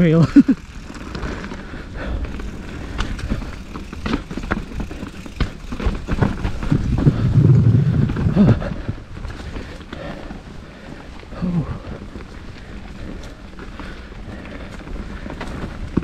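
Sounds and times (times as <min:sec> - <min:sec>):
bike tyre rumble on dirt: 0:00.0 - 0:16.0
bike clattering over bumps: 0:00.2 - 0:11.0.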